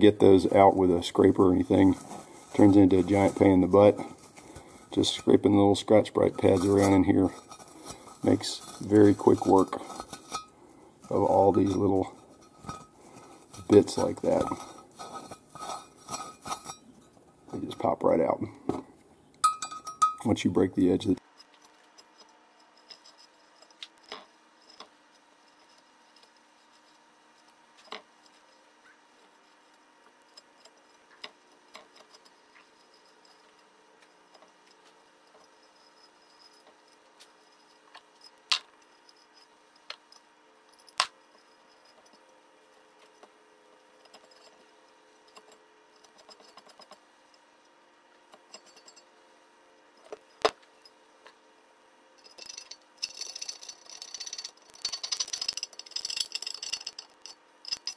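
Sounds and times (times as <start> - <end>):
metallic clicks of engine parts: 52.2 - 57.9.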